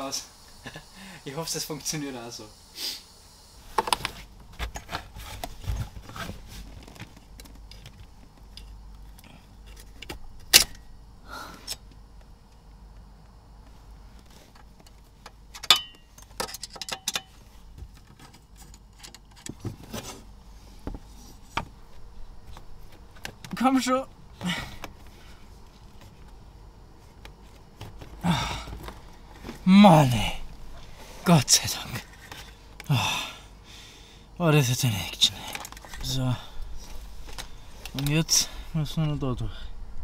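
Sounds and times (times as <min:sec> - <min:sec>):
cable handling clicks and rustles: 0:03.8 - 0:10.8, 0:11.7 - 0:20.3, 0:22.4 - 0:23.6, 0:31.9 - 0:32.9, 0:35.3 - 0:36.2, 0:36.8 - 0:38.3.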